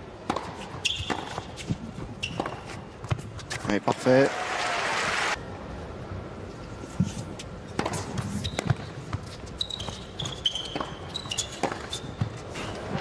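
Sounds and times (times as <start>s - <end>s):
tennis ball bouncing on court: 0.2s - 4.0s, 7.7s - 13.0s
sneakers squeaking on court: 0.3s - 3.7s, 7.7s - 13.0s.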